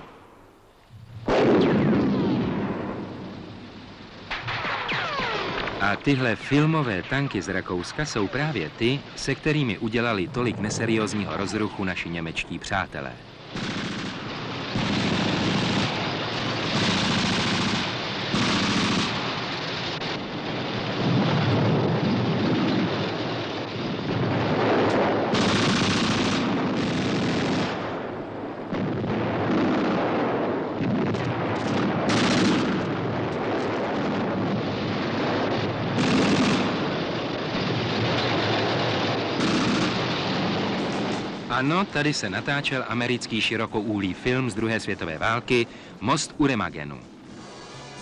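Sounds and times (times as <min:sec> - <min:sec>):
machine-gun and rifle fire: 0:13.5 - 0:19.9, 0:25.2 - 0:27.9, 0:30.8 - 0:33.0, 0:35.8 - 0:37.1, 0:38.0 - 0:41.4.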